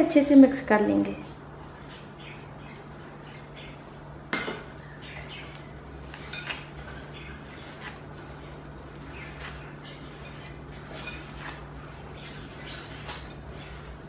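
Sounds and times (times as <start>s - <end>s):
clinks and scraping in bowl: 6.0s - 14.0s.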